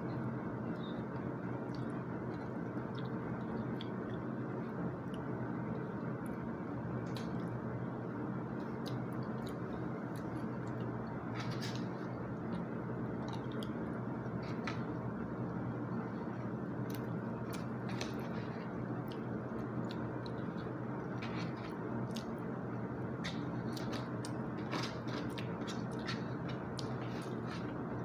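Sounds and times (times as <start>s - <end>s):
person chewing: 8.6s - 15.0s, 16.4s - 28.0s.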